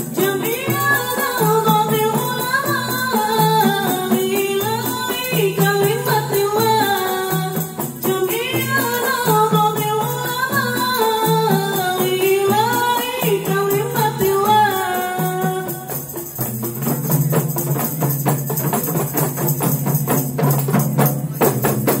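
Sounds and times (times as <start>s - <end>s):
woman singing: 0.0s - 16.1s
frame drums: 0.0s - 22.0s.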